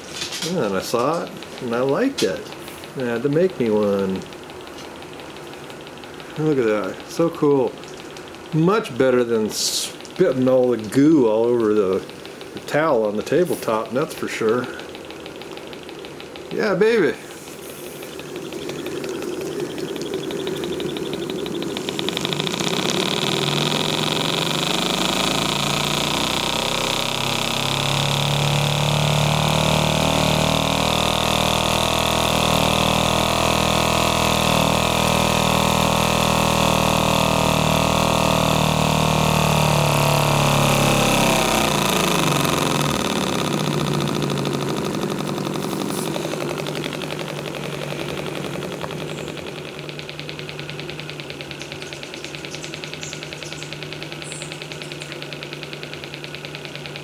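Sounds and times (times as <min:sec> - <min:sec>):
steam engine running: 0:00.0 - 0:57.0
steam hissing: 0:16.5 - 0:50.4.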